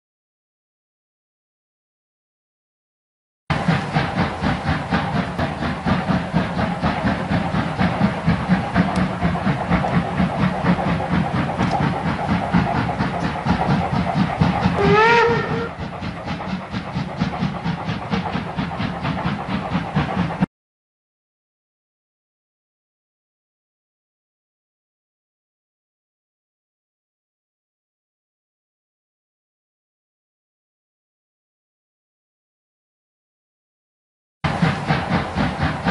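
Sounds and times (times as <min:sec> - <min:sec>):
steam locomotive chuffing: 0:03.5 - 0:20.5, 0:34.4 - 0:35.9
steam whistle blast: 0:14.8 - 0:15.8.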